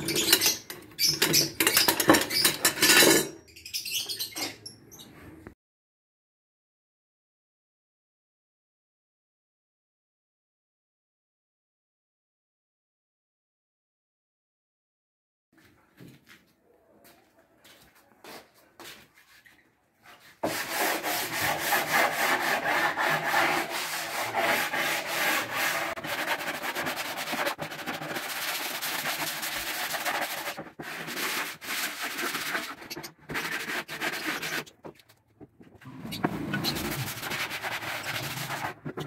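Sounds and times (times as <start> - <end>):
sandpaper scraping on plywood: 20.2 - 35.0, 36.0 - 39.0.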